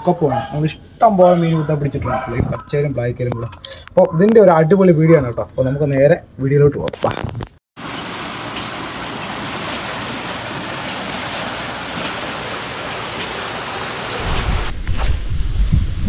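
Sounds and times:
heavy rain hissing: 7.8s - 15.0s
low rumble: 14.2s - 16.0s.

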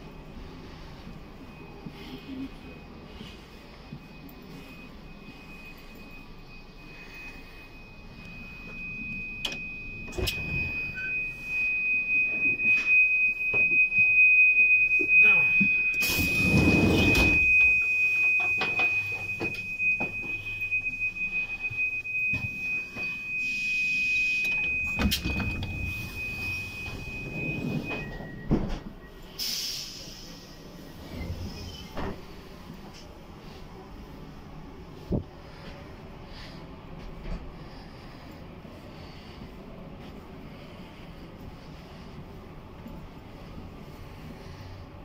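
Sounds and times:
steady high-pitched tone: 0.0s - 44.7s
sliding doors opening and closing: 16.0s - 17.6s, 24.6s - 28.9s.

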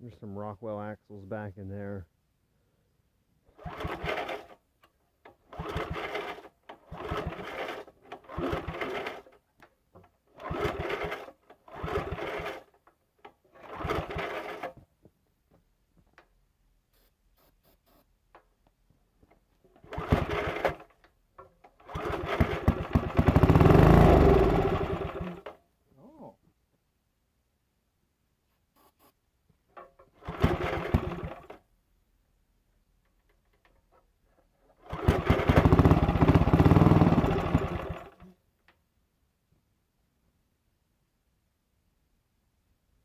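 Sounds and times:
engine recoil starter cranking: 3.6s - 4.6s, 5.3s - 9.4s, 10.4s - 14.8s, 19.8s - 25.6s, 29.8s - 31.6s, 34.7s - 38.2s.

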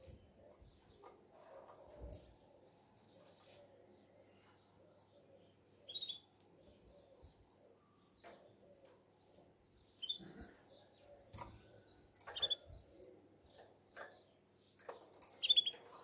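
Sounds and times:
canary chirping: 5.8s - 9.0s, 9.7s - 10.3s, 11.2s - 12.9s, 13.5s - 16.0s.

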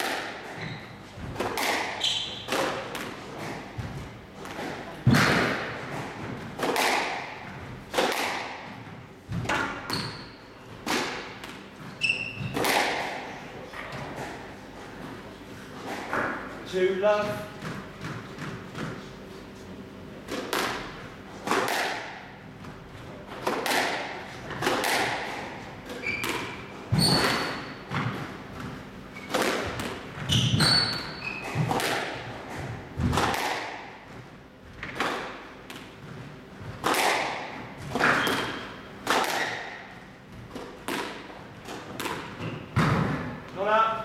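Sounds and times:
shoes squeaking on court floor: 0.4s - 1.3s, 1.9s - 2.6s, 9.8s - 10.8s, 11.6s - 12.7s, 25.9s - 31.8s, 42.3s - 43.0s
squash ball cracking off walls: 4.5s - 8.7s, 20.3s - 22.3s, 23.4s - 25.5s, 29.2s - 32.3s, 36.8s - 39.8s, 40.5s - 43.3s.

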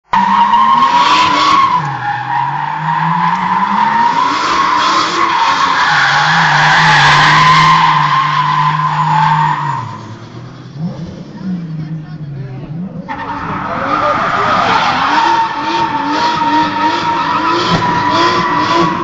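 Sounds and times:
car engine revving: 0.0s - 19.0s
tyres squealing: 13.1s - 19.0s.

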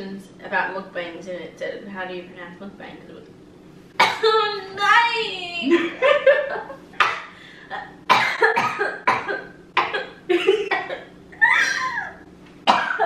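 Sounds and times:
woman laughing in bursts: 5.7s - 6.8s, 10.3s - 12.2s.

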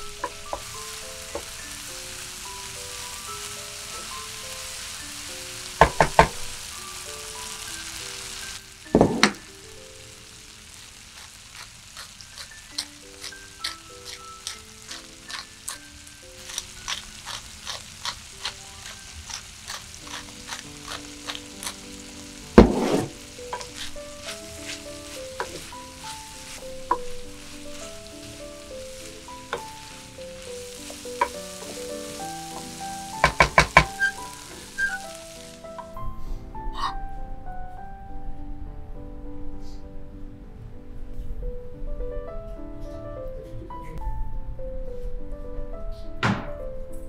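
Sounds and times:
vegetables clattering into pan: 0.0s - 3.2s, 5.6s - 6.7s, 7.6s - 9.5s, 10.6s - 36.0s
food sizzling in a frying pan: 0.0s - 36.0s.

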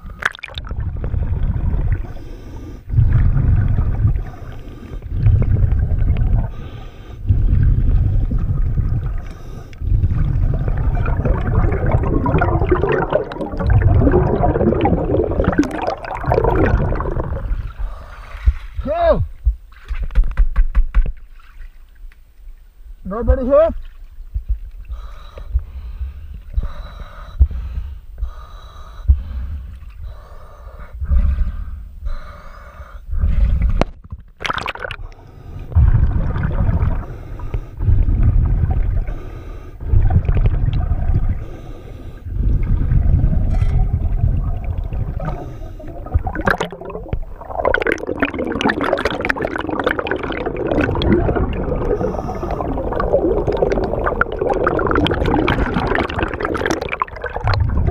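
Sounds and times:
water sloshing and gurgling: 0.0s - 57.9s
diver breathing through regulator: 1.8s - 5.6s, 6.3s - 18.8s, 24.9s - 33.8s, 36.8s - 40.4s, 41.2s - 44.0s, 45.0s - 57.0s.

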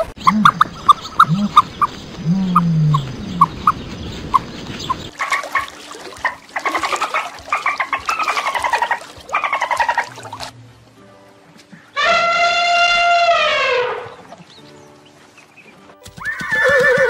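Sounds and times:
low rising and falling hoots: 0.0s - 3.8s
dolphins whistling: 0.0s - 10.3s.

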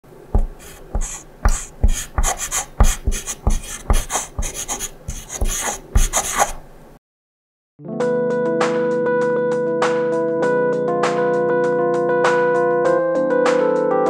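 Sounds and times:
pen scratching on paper: 0.4s - 6.6s.

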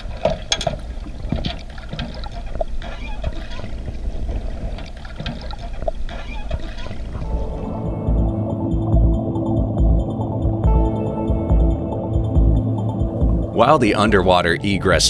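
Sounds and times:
small clicks and knocks: 0.0s - 3.0s
underwater churning water rumble: 0.0s - 14.3s.

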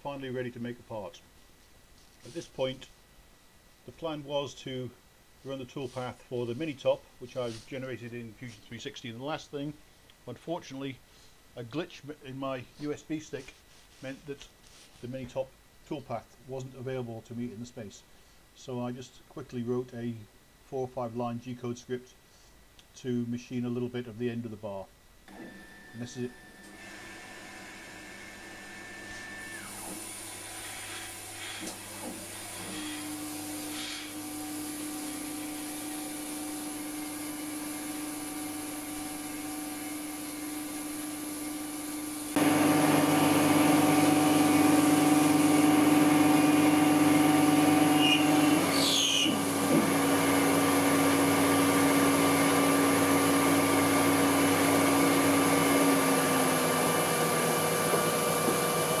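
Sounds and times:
lathe spindle whine: 25.3s - 59.0s.

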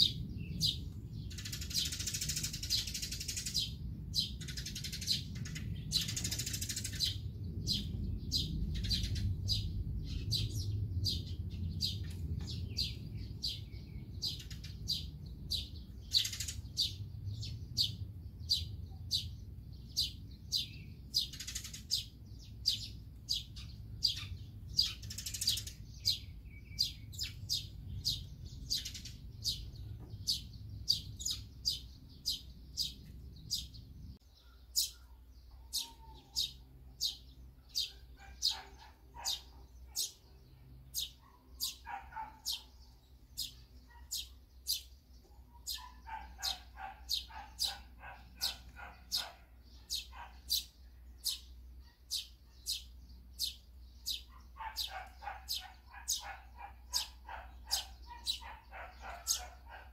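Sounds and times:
sparrows chirping: 0.0s - 59.9s
low rumble: 7.1s - 14.2s.

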